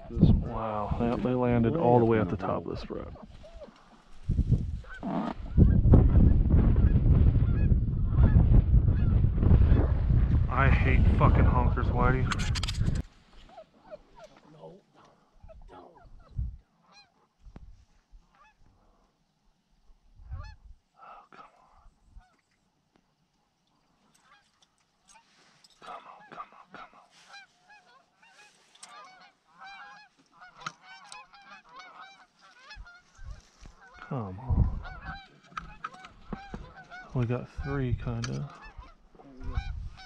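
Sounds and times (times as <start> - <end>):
geese honking: 16.8 - 17.2, 25.1 - 40.0.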